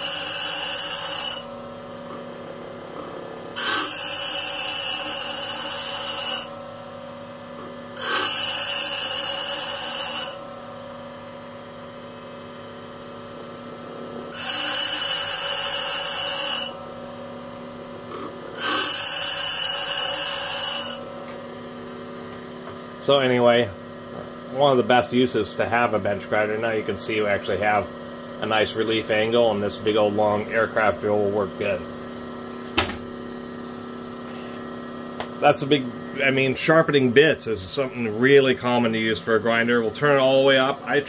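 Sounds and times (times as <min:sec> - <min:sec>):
drill bit grinding on wheel: 0:00.0 - 0:01.5, 0:03.6 - 0:06.6, 0:08.0 - 0:10.4, 0:14.3 - 0:16.8, 0:18.4 - 0:21.1
bench grinder motor hum: 0:00.0 - 0:06.7, 0:07.7 - 0:10.6, 0:13.2 - 0:16.9, 0:17.8 - 0:21.8.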